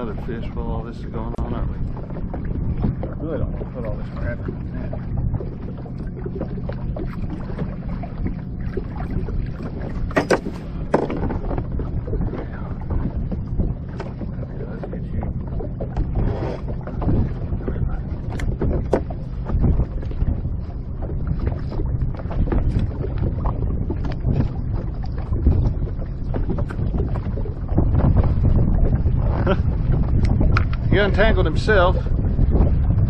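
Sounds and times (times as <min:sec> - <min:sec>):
water lapping against boat hull: 0:00.0 - 0:33.0
wind on microphone: 0:00.0 - 0:33.0
fishing tackle clicks and knocks: 0:10.1 - 0:11.6, 0:18.3 - 0:19.2, 0:30.2 - 0:30.9.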